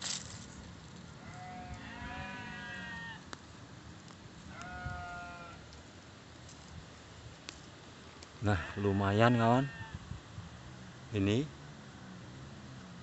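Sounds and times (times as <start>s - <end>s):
livestock bleating: 1.2s - 3.2s, 4.5s - 5.6s, 8.4s - 10.0s.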